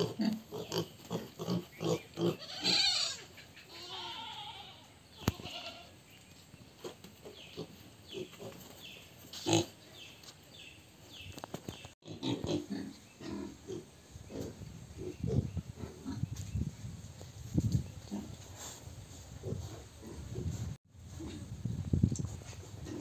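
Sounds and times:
pigs grunting: 0.0 - 3.3, 12.0 - 16.3
pigs squealing: 0.0 - 4.8.

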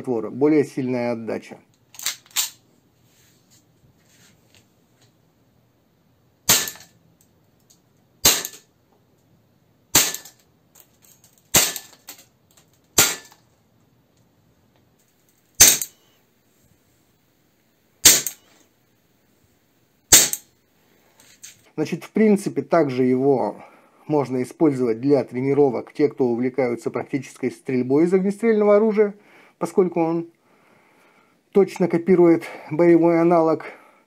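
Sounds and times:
airsoft pistol shots: 6.5 - 6.9, 8.2 - 8.6, 9.9 - 10.4, 11.5 - 11.9, 13.0 - 13.4, 15.6 - 15.9, 18.0 - 18.4, 20.1 - 20.4.

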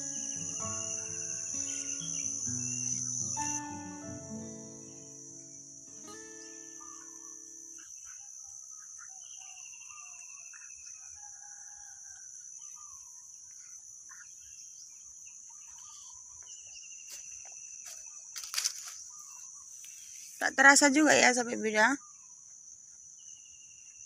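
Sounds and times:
background music: 0.0 - 7.7
birds chirping: 0.0 - 10.8, 12.8 - 22.2
high-pitched insect drone: 0.0 - 10.8.

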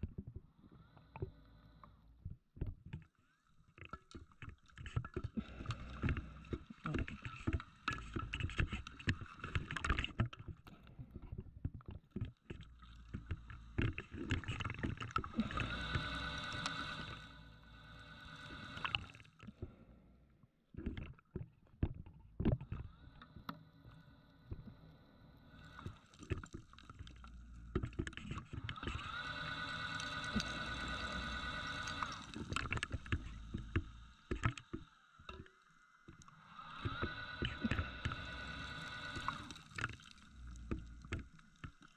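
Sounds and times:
underwater bubbling: 0.0 - 20.2, 20.8 - 41.9
underwater knocking: 31.9 - 38.4.

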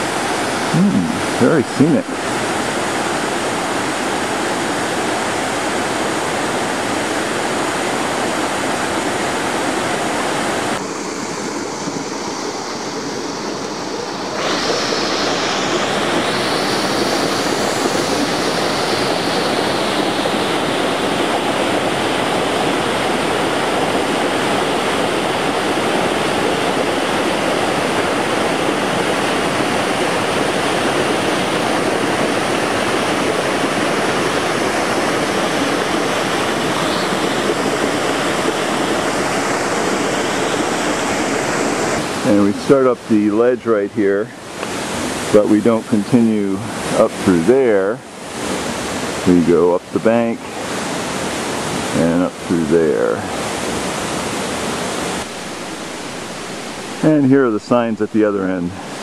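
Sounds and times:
waterfall pouring into pool: 12.8 - 43.9.

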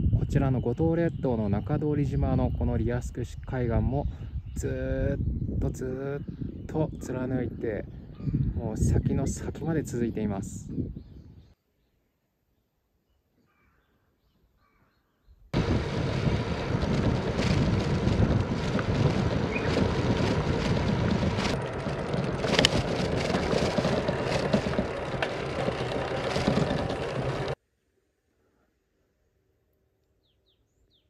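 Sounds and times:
wind rushing over microphone: 0.0 - 11.5, 15.6 - 27.6
road rumble: 15.6 - 27.6
sharp clicks and rattles: 15.6 - 27.6.

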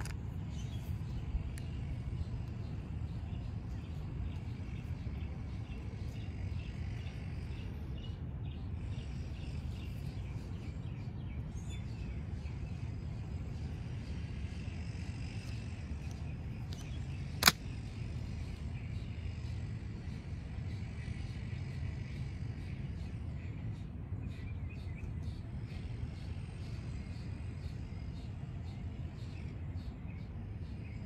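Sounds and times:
low outdoor background rumble: 0.0 - 31.0
switchblade snapping open: 16.7 - 17.6.

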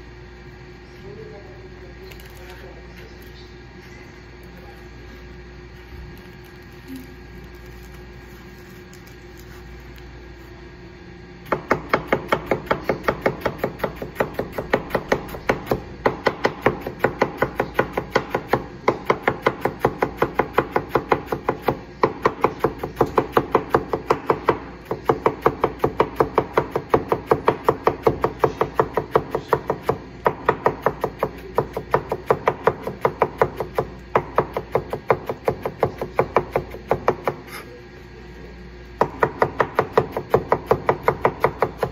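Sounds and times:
knife chopping on plastic board: 11.5 - 37.6, 39.0 - 41.9.

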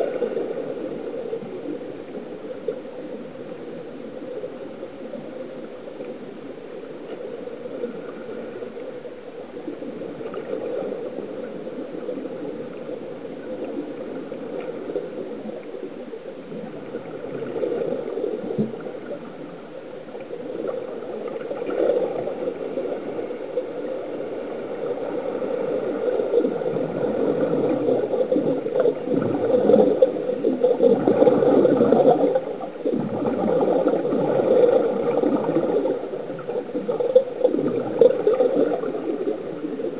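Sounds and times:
muffled underwater air bubbling: 20.2 - 39.9.

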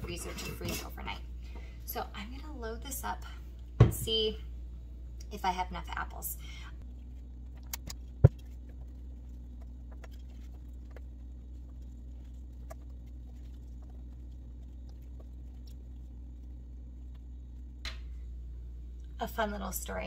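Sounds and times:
low hum: 0.0 - 20.0.

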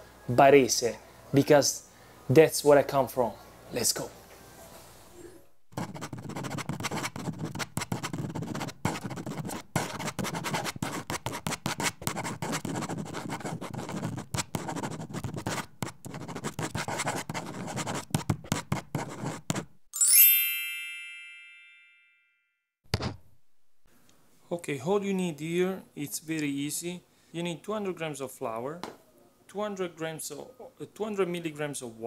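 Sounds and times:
marker scratching on paper: 5.7 - 19.7
bright ding: 20.0 - 22.5.

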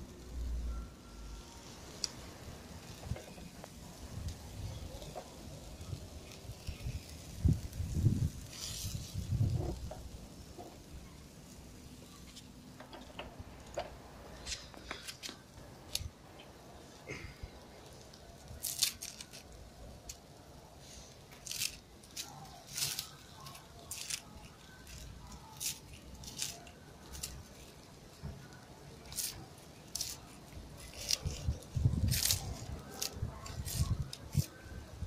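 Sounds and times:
knife scraping metal skewer: 8.5 - 9.8, 21.4 - 27.8, 29.0 - 34.6.

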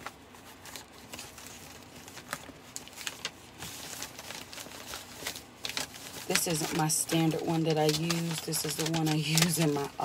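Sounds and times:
paper rustling and crinkling: 0.0 - 10.0.

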